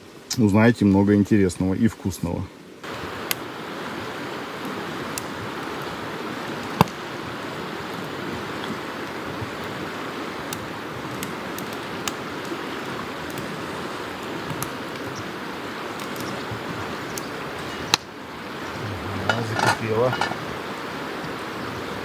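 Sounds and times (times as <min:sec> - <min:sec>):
campfire crackling: 0:00.0 - 0:22.0
stream water rushing: 0:00.0 - 0:22.0
person speaking: 0:18.8 - 0:20.4
metal pots clinking: 0:19.1 - 0:20.4.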